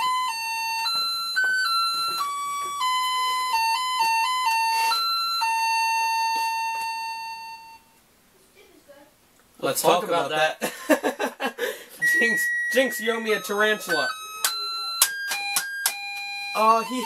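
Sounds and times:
electronic keyboard melody: 0.0 - 7.9, 12.0 - 17.0.

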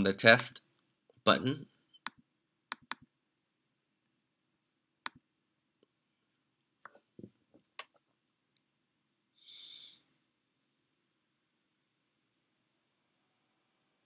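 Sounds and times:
computer mouse clicks: 2.0 - 3.1.

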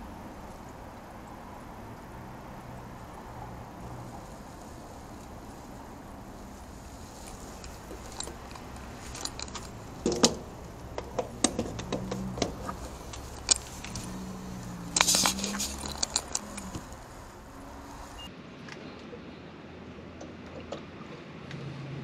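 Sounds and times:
small metal objects clinking: 6.9 - 18.2.

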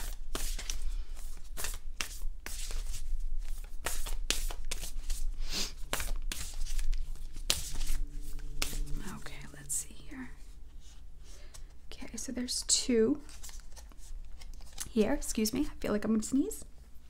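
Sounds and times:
cards being shuffled: 0.0 - 9.2, 13.2 - 15.2.

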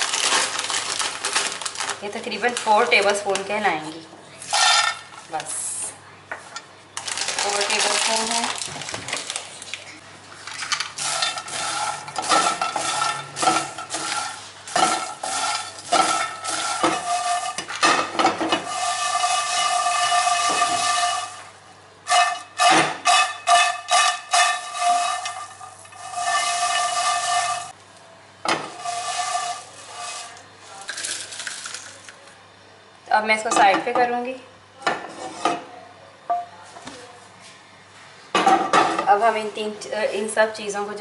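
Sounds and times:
dried chillies rattling in pan: 0.0 - 3.2, 7.0 - 9.5, 10.5 - 21.4, 28.7 - 32.1
pan clicking and scraping: 10.5 - 21.5, 22.1 - 27.7, 28.7 - 32.0.

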